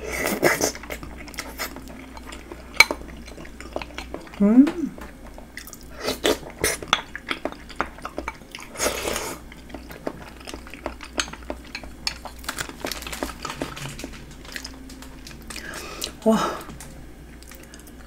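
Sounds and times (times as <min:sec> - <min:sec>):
wet chewing with smacks: 0:00.4 - 0:08.8, 0:09.4 - 0:18.0
slurping from a bowl: 0:08.6 - 0:09.4.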